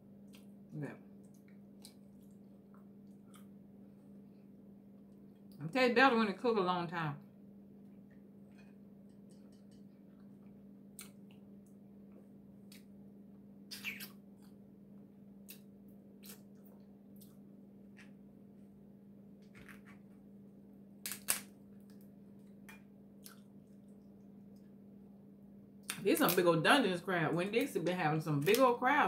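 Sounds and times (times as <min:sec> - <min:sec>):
steady low hum: 0:00.0 - 0:29.0
crab shell cracking: 0:21.0 - 0:22.1.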